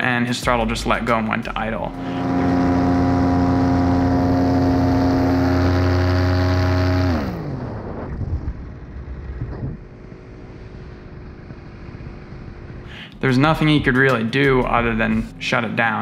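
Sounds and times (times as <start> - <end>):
paramotor engine running: 1.8 - 13.1.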